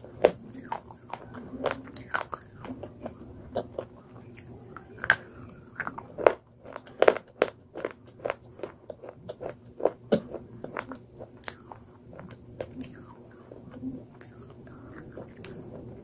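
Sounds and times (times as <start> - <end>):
crunching cracks of chewing: 0.0 - 16.0.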